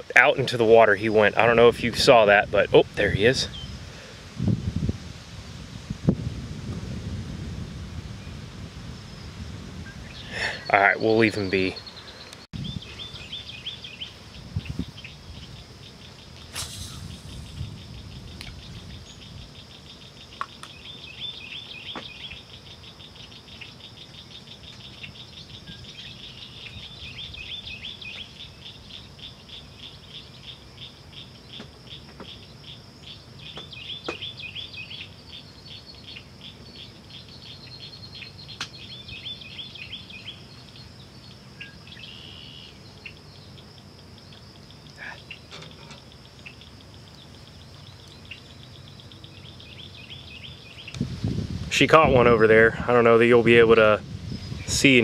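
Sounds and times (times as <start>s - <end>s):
insects droning: 0.0s - 55.0s
insect pulsing trill: 12.5s - 55.0s.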